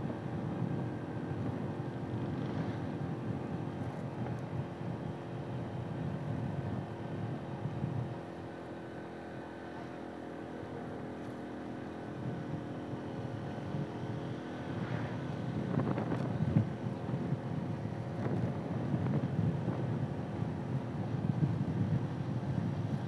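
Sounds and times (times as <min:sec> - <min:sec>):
vehicle engine running: 0:00.0 - 0:23.0
wind buffeting microphone: 0:12.2 - 0:23.0.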